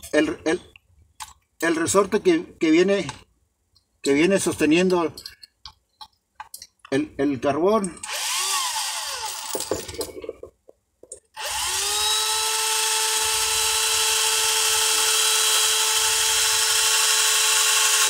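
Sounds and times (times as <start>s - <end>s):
small drill motor whining: 8.0s - 9.5s, 11.4s - 18.0s.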